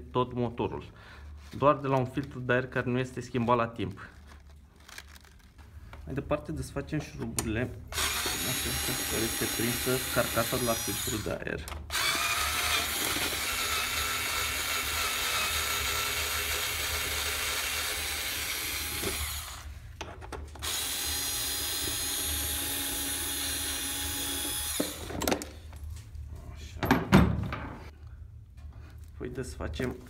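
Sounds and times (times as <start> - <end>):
power drill running: 7.9 - 19.8, 20.6 - 25.1.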